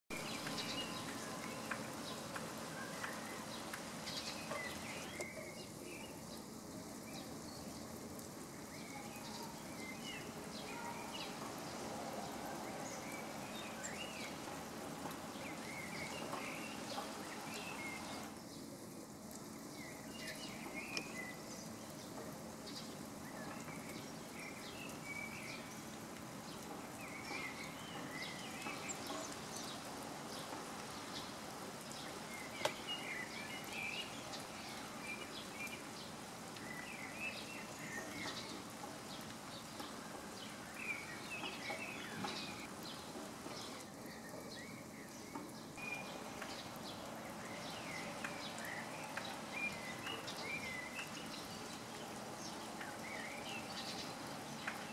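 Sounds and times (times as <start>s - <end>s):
small birds chirping: 0.1s - 54.9s
faint clicks: 32.6s - 32.8s.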